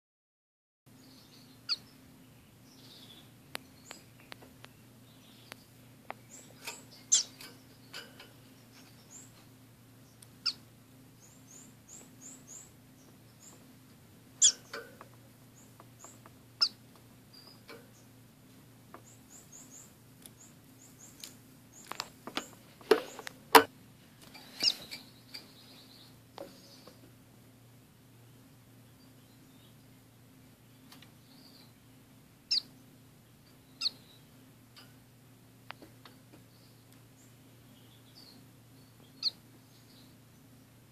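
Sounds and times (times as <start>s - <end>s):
finches chirping: 0.9s - 13.7s, 14.4s - 18.2s, 18.9s - 23.3s, 24.4s - 27.0s, 30.8s - 34.4s, 35.7s - 40.7s.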